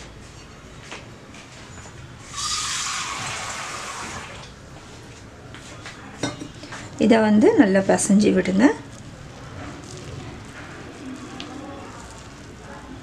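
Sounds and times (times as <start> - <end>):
water gushing: 2.2 - 4.6.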